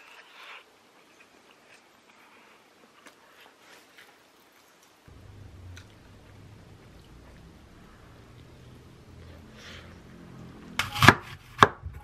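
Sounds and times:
soft hiss: 3.6s - 9.8s
faint low hum: 5.1s - 10.9s.

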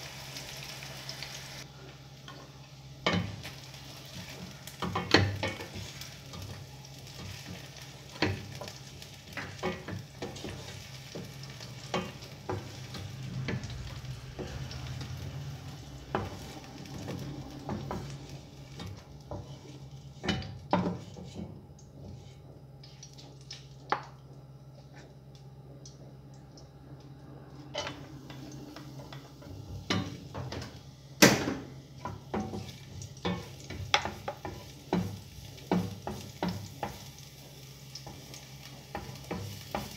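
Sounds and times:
food sizzling in hot oil: 0.0s - 24.0s, 27.7s - 39.9s
steady low hum: 1.6s - 39.4s
spatula scraping a frying pan: 16.2s - 22.4s.

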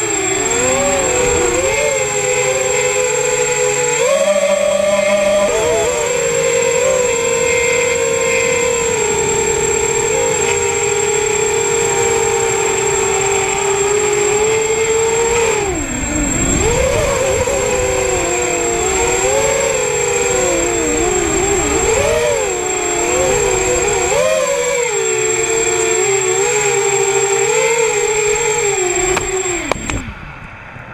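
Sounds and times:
thin steady high tone: 0.0s - 30.0s
drone motors whining: 0.0s - 30.4s.

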